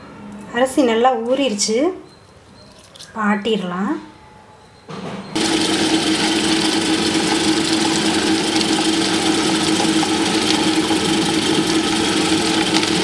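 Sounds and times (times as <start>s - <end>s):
wet grinder grinding: 5.4s - 13.0s.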